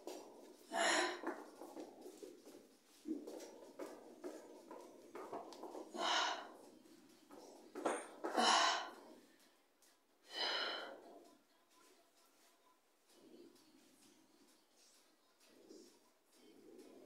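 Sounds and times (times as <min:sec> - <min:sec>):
woman breathing heavily: 0:00.0 - 0:09.6, 0:10.2 - 0:11.3.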